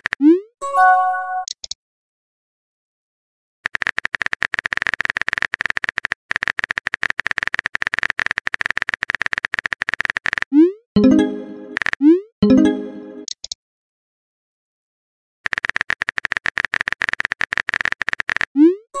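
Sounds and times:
keyboard typing clicks: 11.0 - 13.6.

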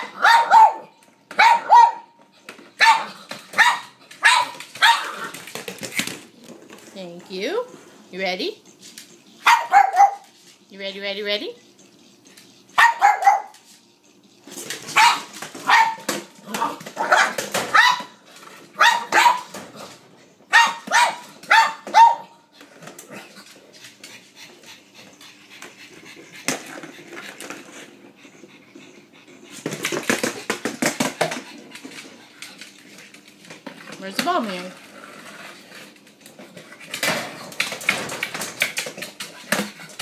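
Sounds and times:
dog barking sharply: 0.1 - 0.8, 1.4 - 2.1, 9.5 - 10.2.

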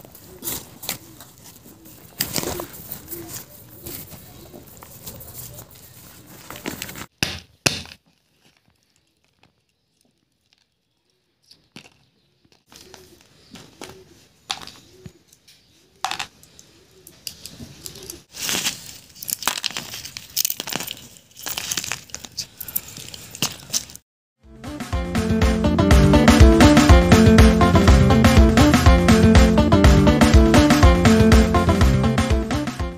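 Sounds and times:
walnut shells cracking: 17.2 - 24.0.

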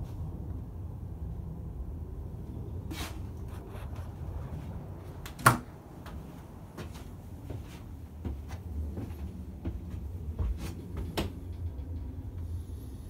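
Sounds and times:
low rumble: 0.0 - 5.2, 8.0 - 13.0
footsteps on wooden floor: 6.8 - 11.2.

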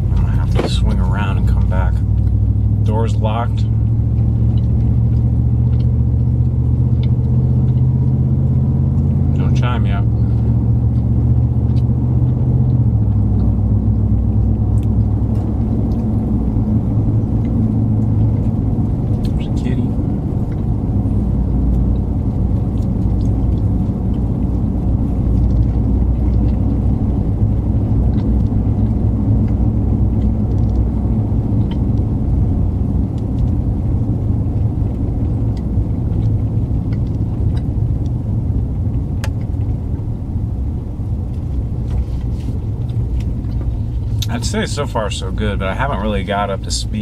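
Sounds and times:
truck engine and road noise: 0.0 - 47.0.

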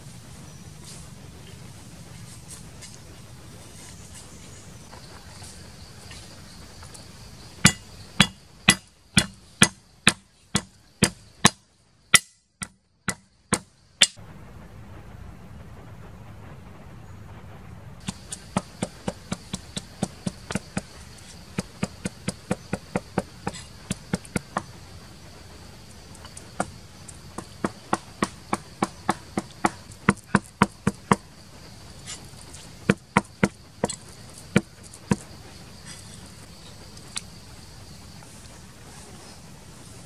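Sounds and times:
high insect buzz: 18.0 - 40.0.

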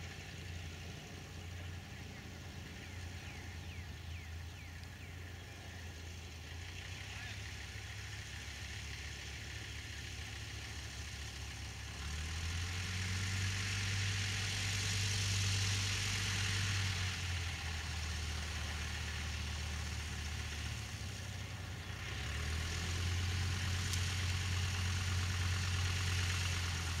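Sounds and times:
biplane engine droning: 0.0 - 8.2.

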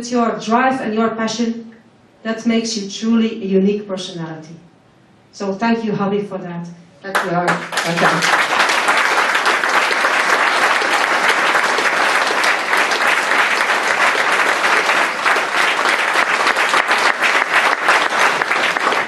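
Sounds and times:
audience applauding: 7.1 - 19.0.

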